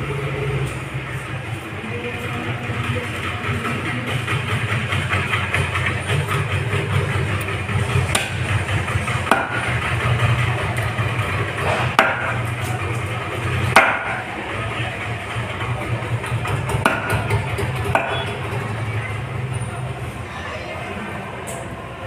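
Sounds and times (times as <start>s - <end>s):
low mechanical hum: 0.0s - 22.0s
cleaver chopping on wooden block: 8.1s - 8.4s, 9.3s - 9.9s, 11.8s - 12.4s, 13.7s - 14.2s, 16.7s - 17.3s, 17.9s - 18.2s.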